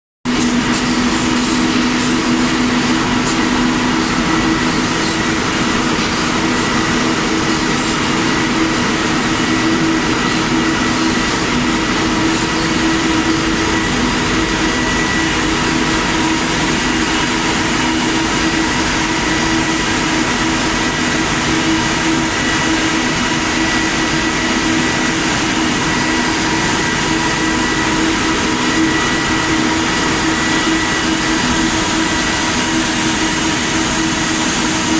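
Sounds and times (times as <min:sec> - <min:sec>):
low machine hum: 0:00.3 - 0:34.9
spinning machinery whirring: 0:00.3 - 0:34.9.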